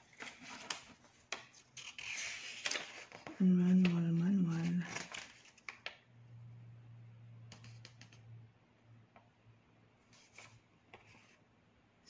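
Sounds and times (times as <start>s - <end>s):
paper pages rustling: 0.0s - 6.0s, 10.1s - 11.4s
low steady hum: 3.4s - 5.4s, 6.0s - 10.1s.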